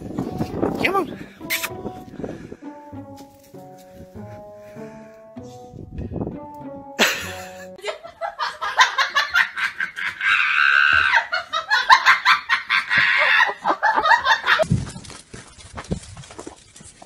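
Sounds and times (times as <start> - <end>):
music: 0.0 - 7.8
person laughing hard: 7.0 - 14.6
high-pitched squeal of laughter: 9.6 - 14.6.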